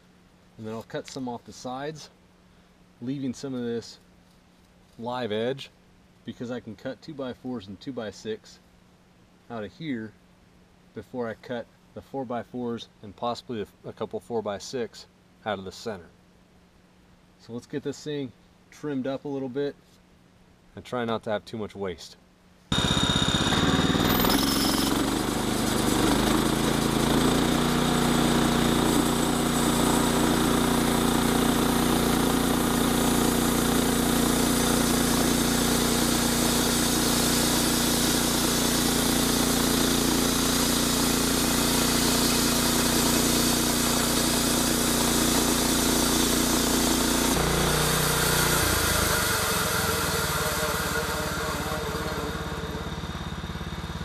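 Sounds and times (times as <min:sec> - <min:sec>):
sawmill gasoline engine running: 0:22.7 - 0:54.0.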